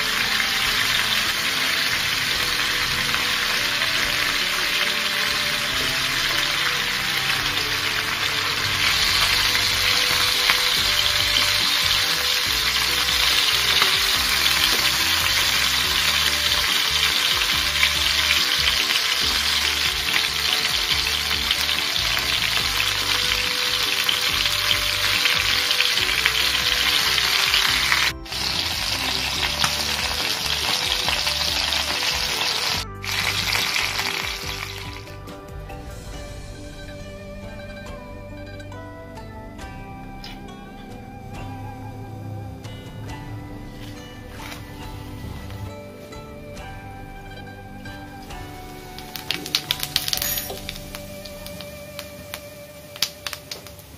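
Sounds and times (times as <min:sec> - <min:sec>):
chicken sizzling in hot oil: 0:00.0 - 0:35.1, 0:48.3 - 0:53.9.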